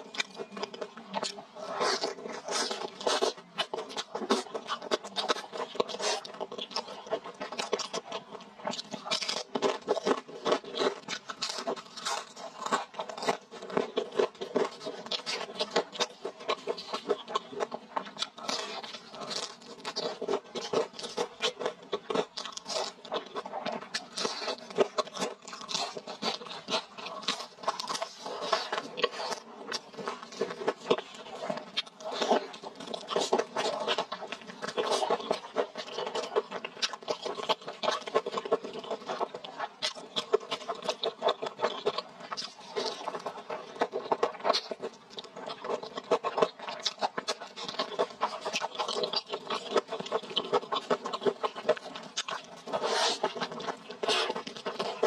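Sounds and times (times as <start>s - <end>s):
crunchy chewing: 0.0s - 55.0s.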